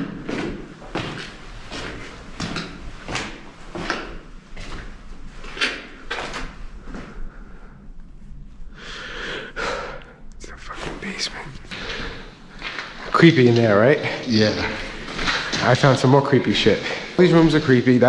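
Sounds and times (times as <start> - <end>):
footsteps on gritty floor: 0.0 - 7.1, 11.6 - 18.0
foot scraping on floor: 0.0 - 7.2, 11.7 - 18.0.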